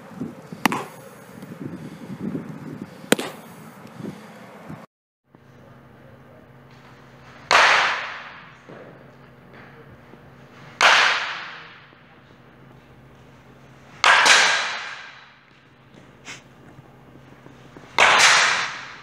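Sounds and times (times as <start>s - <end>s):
low steady hum: 0.0s - 19.0s
bat cracking baseball: 0.4s - 1.9s, 2.9s - 3.8s, 6.7s - 19.0s.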